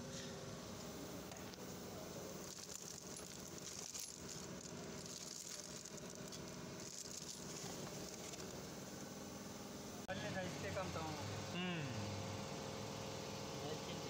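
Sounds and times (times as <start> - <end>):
plastic bag crinkling: 2.4 - 8.6.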